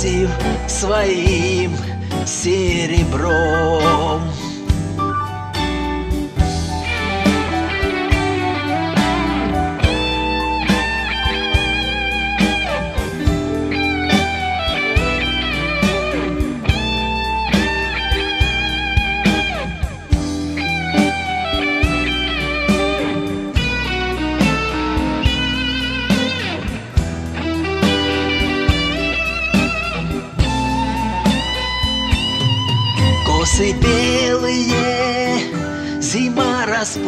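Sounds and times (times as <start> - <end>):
bass: 0.0 - 37.0
lead electric guitar melody: 0.0 - 37.0
steady drum beat: 5.8 - 34.7.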